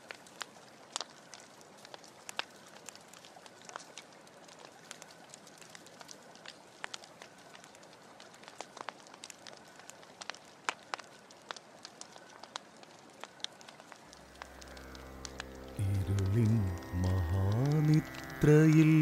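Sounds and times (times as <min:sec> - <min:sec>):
wood fire crackling: 0:00.0 - 0:19.0.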